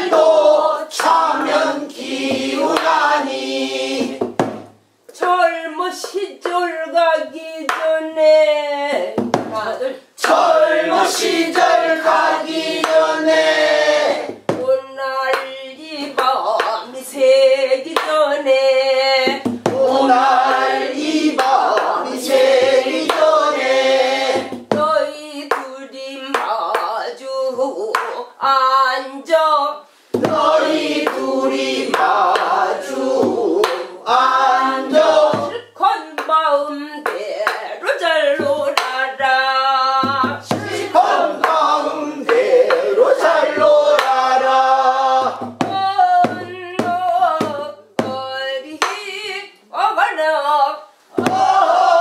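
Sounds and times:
voices singing folk song: 0:00.0 - 0:04.4, 0:05.2 - 0:52.0
sharp drum stroke or clap: 0:00.0 - 0:05.4, 0:10.2 - 0:14.7, 0:19.2 - 0:24.9, 0:30.1 - 0:35.6, 0:40.0 - 0:48.2, 0:51.1 - 0:52.0.

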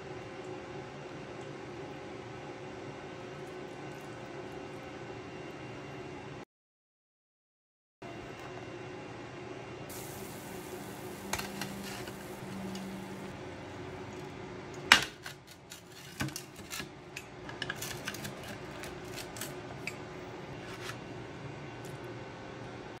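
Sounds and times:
low steady hum: 0:08.0 - 0:23.0
pizza cutter crunching crust: 0:17.6 - 0:19.9.

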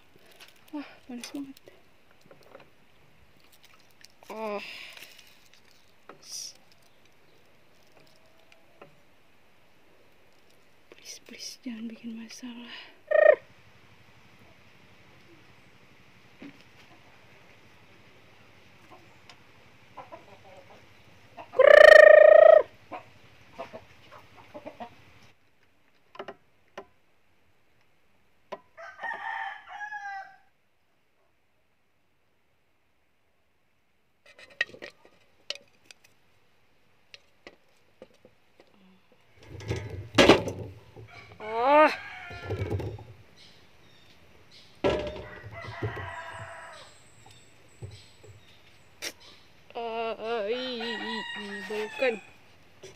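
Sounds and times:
chicken calls: 0:13.0 - 0:13.5, 0:19.9 - 0:25.1
rooster crowing: 0:28.8 - 0:30.6, 0:41.1 - 0:42.7, 0:45.2 - 0:47.0, 0:50.7 - 0:52.4.

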